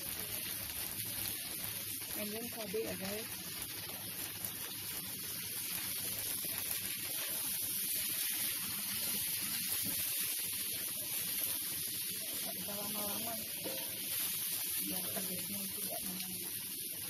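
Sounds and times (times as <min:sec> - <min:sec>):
stir-frying in a wok sizzling: 0:00.0 - 0:17.0.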